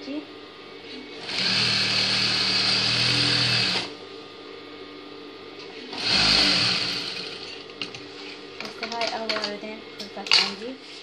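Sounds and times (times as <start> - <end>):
industrial sewing machine stitching: 1.2 - 3.9, 5.9 - 7.5.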